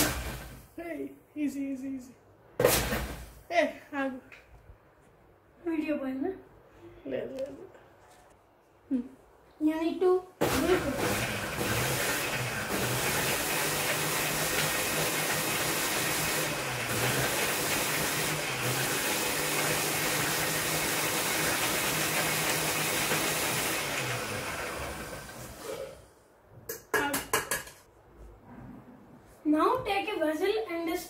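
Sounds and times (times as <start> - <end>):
mixer grinder blending: 0.0 - 0.5, 10.4 - 26.0.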